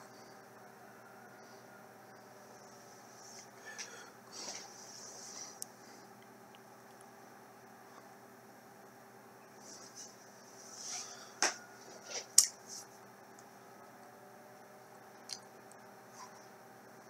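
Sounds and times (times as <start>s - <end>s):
faint steady hum: 0.0s - 17.0s
soft rustling: 9.6s - 11.2s.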